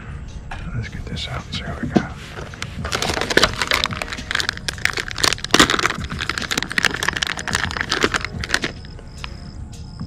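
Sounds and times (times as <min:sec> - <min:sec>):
plastic bag crinkling: 0:02.3 - 0:08.9.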